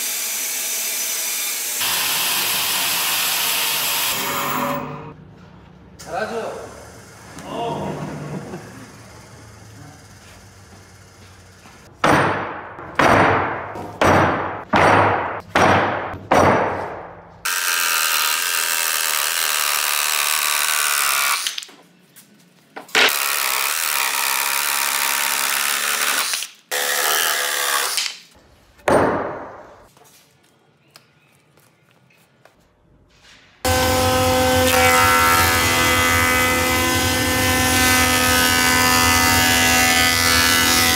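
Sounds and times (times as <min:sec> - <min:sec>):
power tool running: 0:00.0 - 0:05.2, 0:06.4 - 0:11.8, 0:17.5 - 0:21.6, 0:33.6 - 0:40.9.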